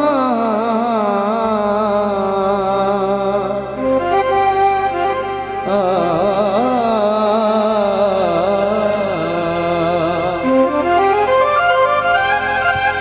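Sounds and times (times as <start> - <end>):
harmonium chords: 0.0 - 13.0
man singing melismatic line: 5.6 - 13.0.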